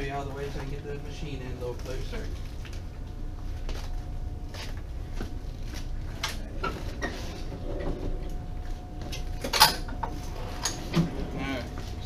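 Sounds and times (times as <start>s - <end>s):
machine rolling across floor: 6.6s - 12.0s.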